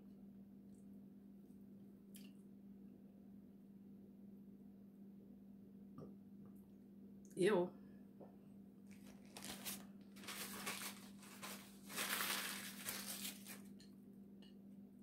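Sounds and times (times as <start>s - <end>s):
paper towel crumpling: 8.9s - 13.8s.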